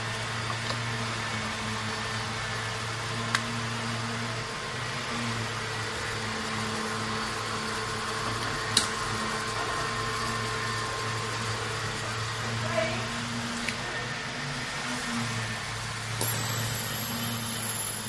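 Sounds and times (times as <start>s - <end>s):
electrical hum and fan noise: 0.0s - 18.0s
short sharp clicks: 16.2s - 18.0s.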